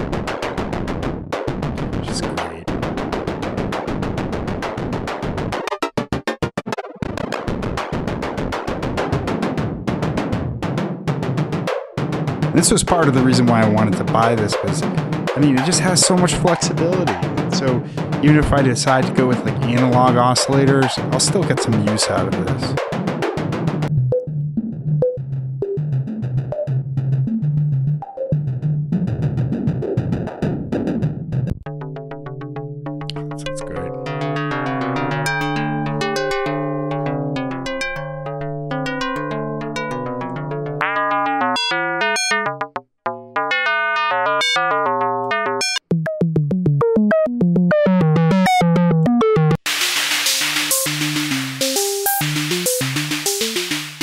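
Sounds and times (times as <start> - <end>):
electronic bass drum: 0.0 - 6.1, 7.0 - 31.7, 45.9 - 54.0
fast synth notes: 12.6 - 22.8, 45.6 - 54.0.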